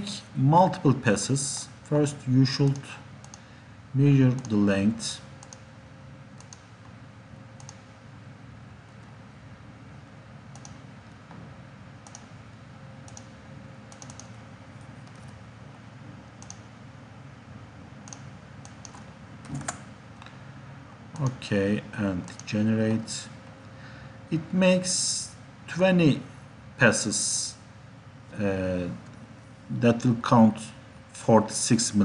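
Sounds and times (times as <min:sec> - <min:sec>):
low background hum: 0:00.0 - 0:32.0
mouse and keyboard clicks: 0:07.6 - 0:07.8, 0:13.9 - 0:14.4, 0:16.4 - 0:16.6.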